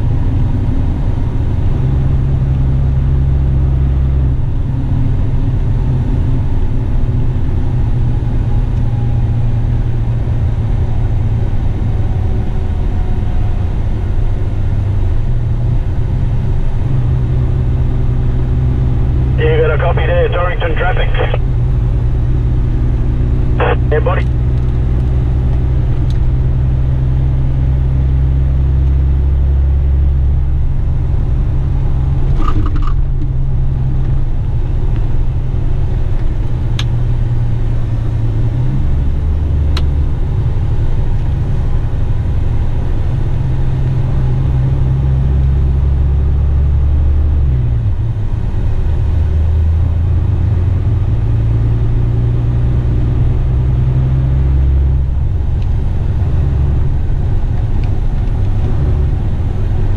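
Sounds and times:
diesel truck engine droning: 0:16.9 - 0:32.3.

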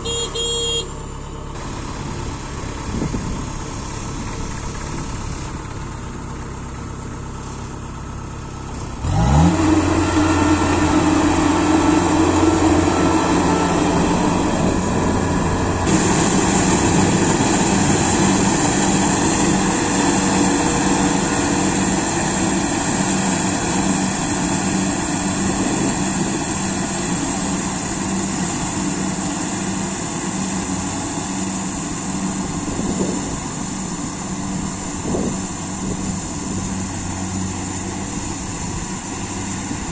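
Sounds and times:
diesel engine idling and revving: 0:00.0 - 0:39.9
harvester threshing hiss: 0:09.5 - 0:39.8.

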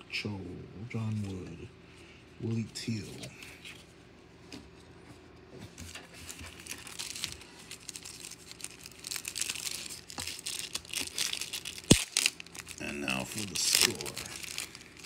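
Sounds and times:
wrapper tearing and crinkling: 0:06.2 - 0:15.0.

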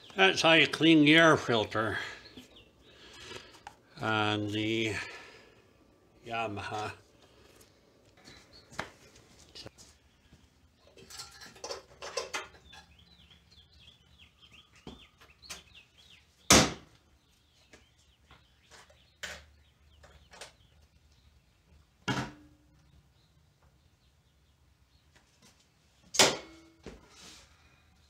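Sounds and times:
faint bird chirping: 0:12.5 - 0:21.9.

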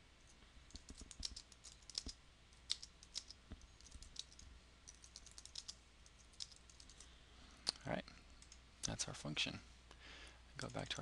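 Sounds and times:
typing on computer keyboard: 0:00.7 - 0:07.0.

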